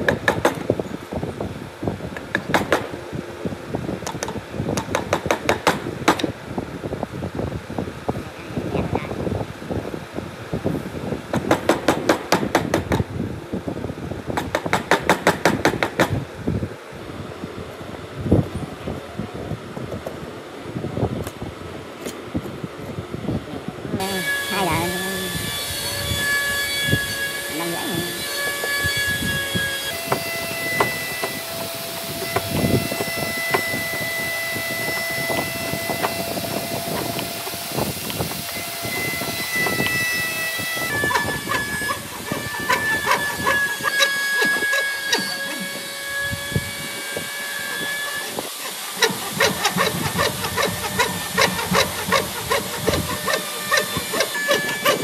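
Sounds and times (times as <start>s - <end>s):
chisel chipping wood: 49.0s - 55.0s.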